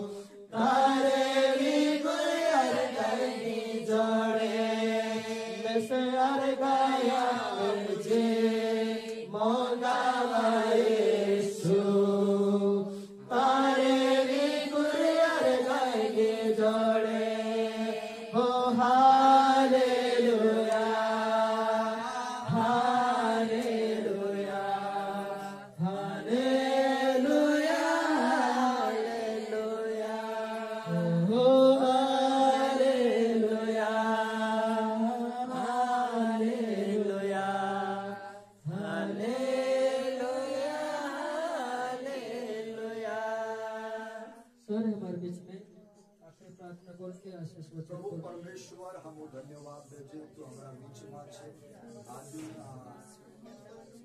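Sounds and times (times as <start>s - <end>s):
breaths: 0.0s - 0.5s, 12.8s - 13.3s, 38.2s - 38.6s
group singing a cappella: 0.0s - 44.7s, 50.6s - 54.0s.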